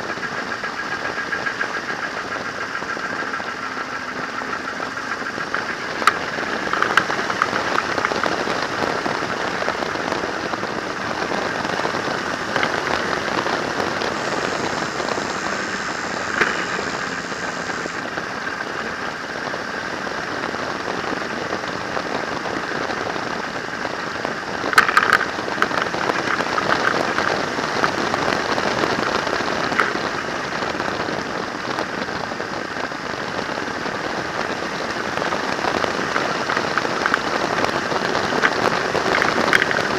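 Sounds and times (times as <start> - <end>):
crackles and clicks: 0.0 - 39.9
wind on microphone: 4.6 - 39.9.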